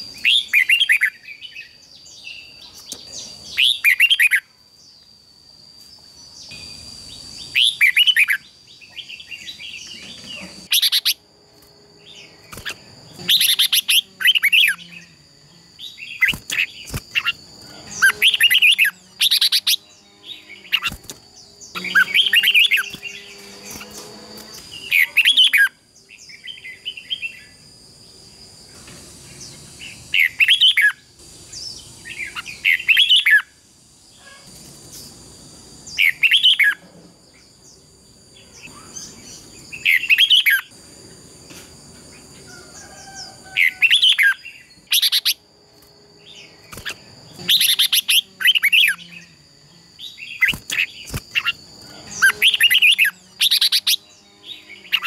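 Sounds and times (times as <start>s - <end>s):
birds singing warbled phrases: 0.0s - 5.1s, 6.2s - 11.2s, 12.0s - 27.6s, 29.4s - 33.6s, 35.8s - 40.7s, 43.1s - 45.4s, 46.2s - 55.0s
faint steady high tone: 0.0s - 10.5s.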